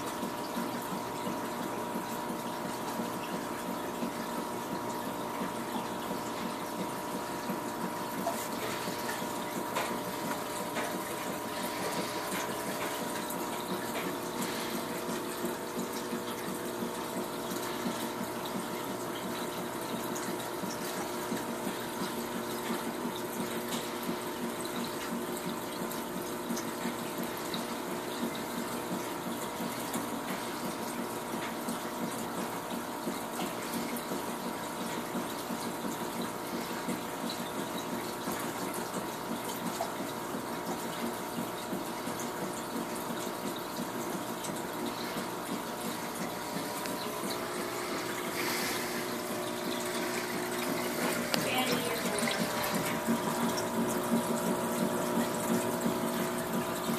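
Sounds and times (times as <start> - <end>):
motor hum: 0.0 - 56.9.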